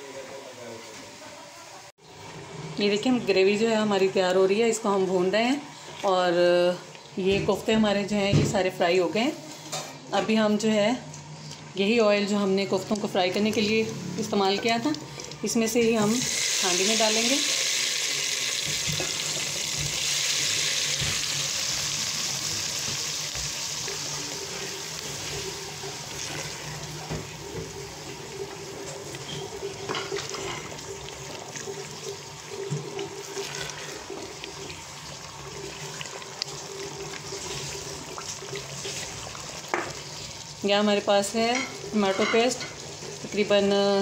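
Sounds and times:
paste sizzling in hot oil: 16.0 - 40.7.

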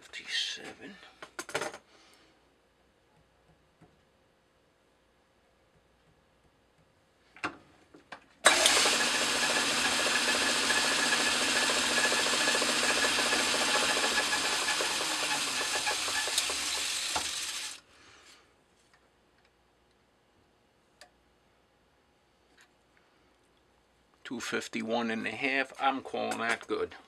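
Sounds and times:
metal lathe cutting: 8.5 - 17.8.

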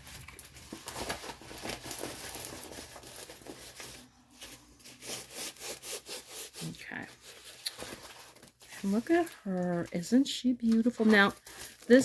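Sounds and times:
plastic packaging crinkling: 0.0 - 5.6, 6.6 - 12.0.

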